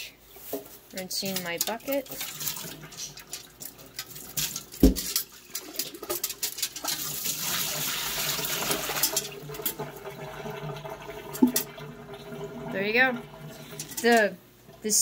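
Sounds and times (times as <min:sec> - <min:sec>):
water sloshing in metal bucket: 0:00.9 - 0:14.3
water pouring into metal sink: 0:01.2 - 0:14.9.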